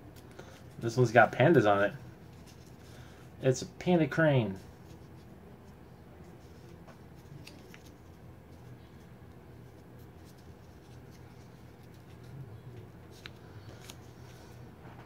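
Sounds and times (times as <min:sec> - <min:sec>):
steady low hum: 0:00.0 - 0:15.0
paper rustling: 0:06.3 - 0:15.0.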